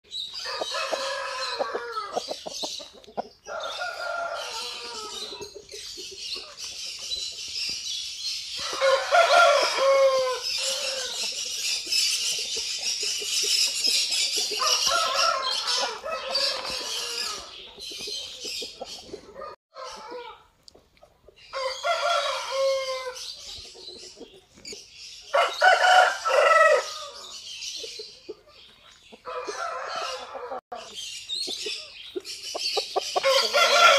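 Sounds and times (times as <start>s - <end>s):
chicken clucking: 0.2s - 7.9s, 8.6s - 33.9s
roosters crowing: 0.3s - 2.4s, 3.4s - 5.6s, 8.5s - 11.6s, 14.4s - 17.7s, 21.5s - 23.3s, 25.3s - 27.4s, 29.2s - 30.9s, 33.0s - 33.9s.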